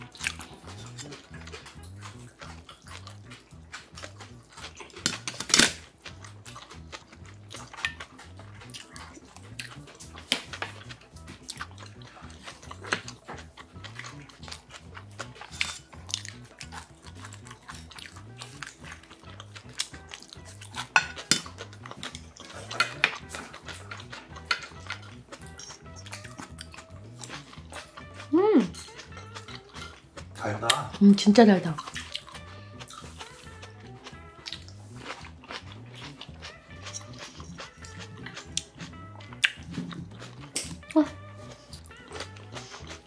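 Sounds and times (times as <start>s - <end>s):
soft background music: 0.0s - 43.0s
utensils clinking on metal bowls: 4.6s - 5.9s, 15.5s - 16.0s, 20.7s - 26.6s, 27.3s - 32.5s.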